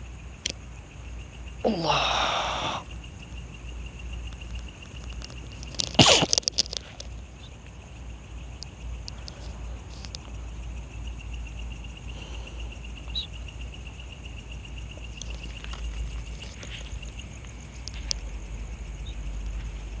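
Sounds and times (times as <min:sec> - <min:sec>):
insects trilling: 0:00.0 - 0:20.0
faint clicks: 0:08.5 - 0:10.4, 0:14.9 - 0:18.3.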